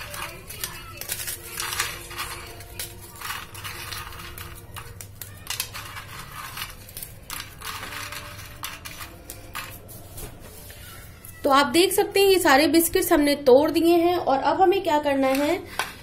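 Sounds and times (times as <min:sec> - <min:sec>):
biscuits snapping and crunching: 0:00.0 - 0:09.8.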